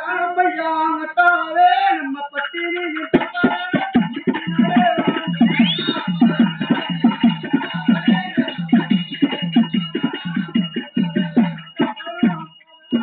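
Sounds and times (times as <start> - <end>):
person singing: 0.0 - 13.0
drum strokes: 3.1 - 13.0
high piping tone: 3.4 - 13.0.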